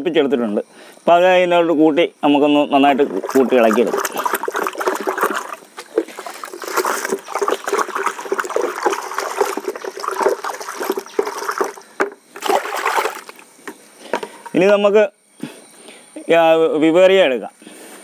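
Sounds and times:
water sloshing in plastic bucket: 0:02.7 - 0:14.6.

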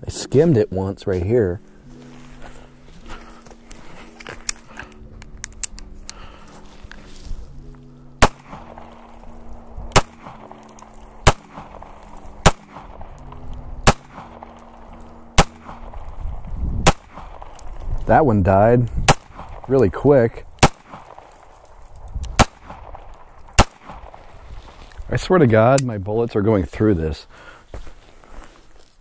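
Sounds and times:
soft background music: 0:00.0 - 0:27.2
pistol shots: 0:08.2 - 0:09.2, 0:09.9 - 0:13.2, 0:13.8 - 0:16.2, 0:16.8 - 0:17.7, 0:19.0 - 0:19.7, 0:20.6 - 0:21.4, 0:22.4 - 0:24.2.

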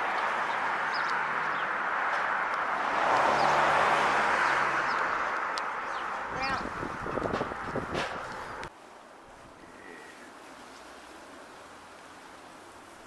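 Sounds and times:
vehicle passing: 0:00.0 - 0:08.7
traffic noise: 0:00.0 - 0:13.0.

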